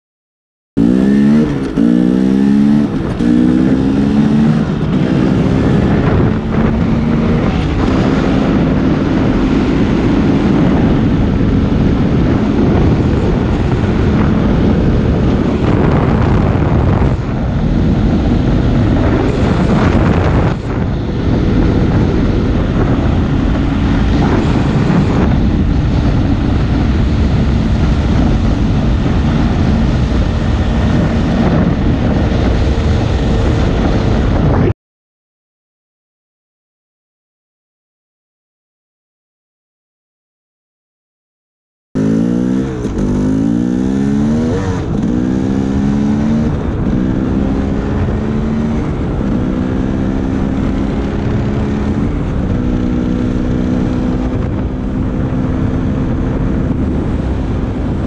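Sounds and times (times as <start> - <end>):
dirt bike engine revving: 0.8 - 10.9, 17.8 - 34.0, 42.0 - 57.9
wind noise: 0.8 - 34.8, 42.0 - 58.0.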